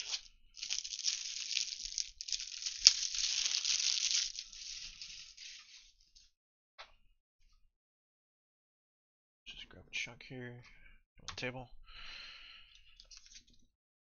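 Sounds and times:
plastic wrapping crinkling and tearing: 0:00.0 - 0:05.9.

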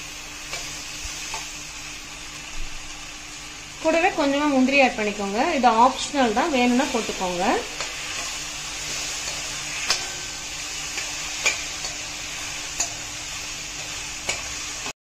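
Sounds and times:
vegetables sizzling in oil: 0:00.0 - 0:15.0
steel spoon stirring: 0:07.8 - 0:14.6.

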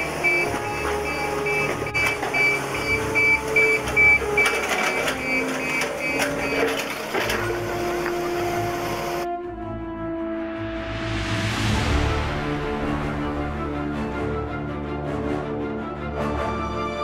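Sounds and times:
reversing alarm beeping: 0:00.0 - 0:09.2
diesel engine: 0:00.0 - 0:09.3
metallic clanks: 0:00.2 - 0:08.8.

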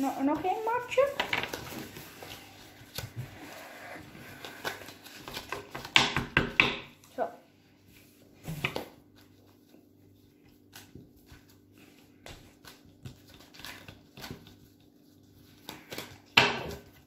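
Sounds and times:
cards tapping and clicking: 0:04.4 - 0:06.9.

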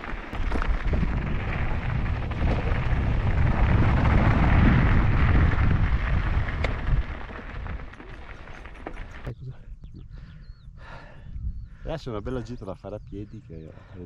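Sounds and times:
bike tyres rolling over trail: 0:00.0 - 0:09.3
wind buffeting microphone: 0:00.0 - 0:13.9.

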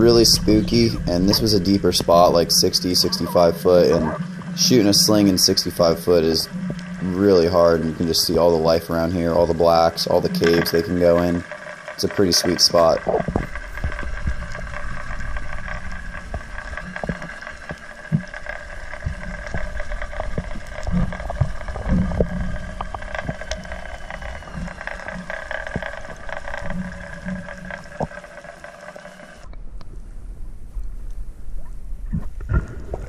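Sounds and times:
underwater humming tones: 0:00.0 - 0:33.0
sharp clicks: 0:10.1 - 0:29.6.

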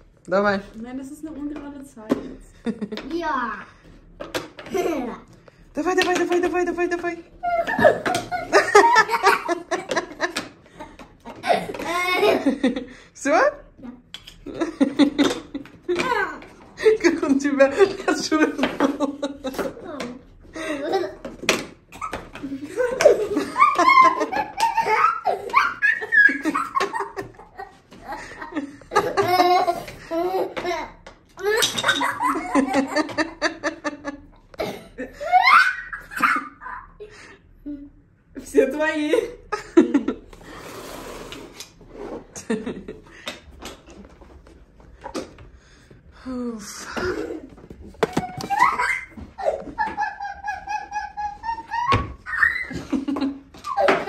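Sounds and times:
boy and woman laughing: 0:04.6 - 0:05.2, 0:06.5 - 0:13.0, 0:14.4 - 0:38.0, 0:39.5 - 0:40.4, 0:46.9 - 0:54.0
young child laughing: 0:47.0 - 0:54.0.

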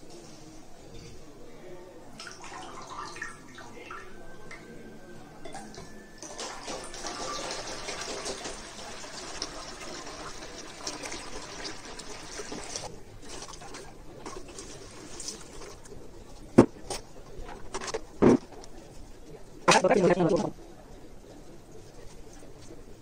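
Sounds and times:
water splashing into a container: 0:06.2 - 0:15.8.

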